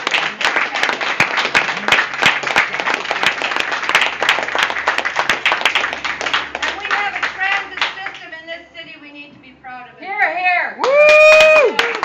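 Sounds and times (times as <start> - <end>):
people applauding: 0.0 - 8.2, 10.8 - 12.0.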